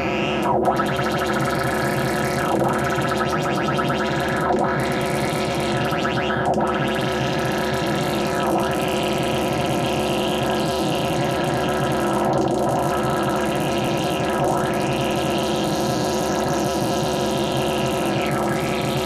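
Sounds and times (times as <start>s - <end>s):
modular synthesizer drone: 0.0s - 19.0s.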